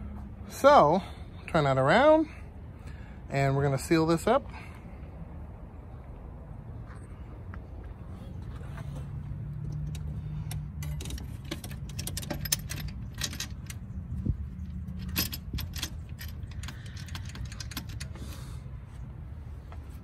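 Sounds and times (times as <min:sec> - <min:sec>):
metal parts clinking: 0:09.7 - 0:14.0, 0:14.6 - 0:18.2.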